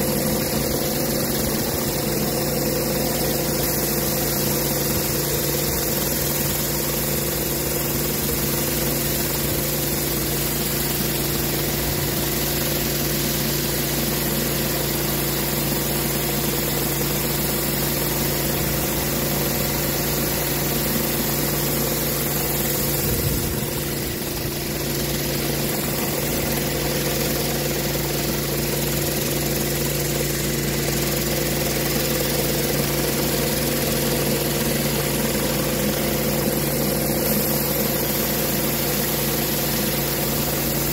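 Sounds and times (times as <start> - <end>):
water jets hissing: 0.0 - 16.1, 33.9 - 40.9
pressure washer running: 0.0 - 40.9.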